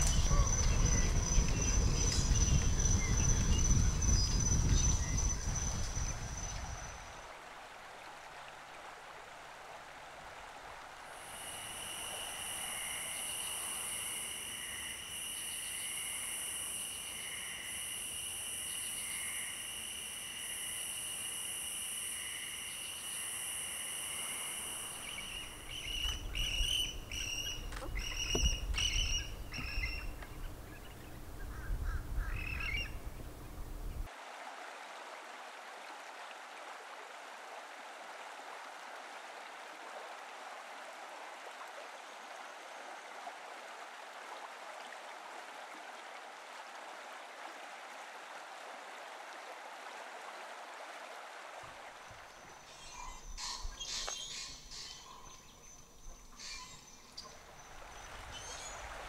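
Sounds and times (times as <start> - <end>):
steady background hiss: 0.0 - 59.0
high insect trill: 11.2 - 30.1.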